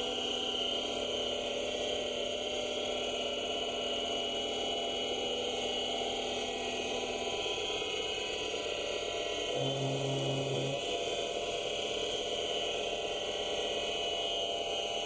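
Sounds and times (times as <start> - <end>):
lathe machine whine: 0.0 - 11.1.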